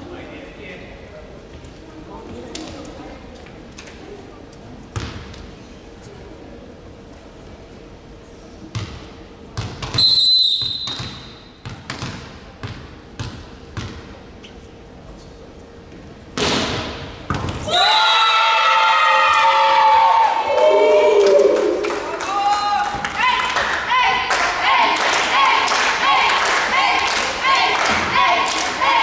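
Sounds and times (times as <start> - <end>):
volleyball bouncing on floor: 8.7 - 10.0, 10.6 - 14.1, 17.3 - 17.6
referee's whistle blast: 10.0 - 11.3
spectators shouting and chanting: 17.6 - 29.0.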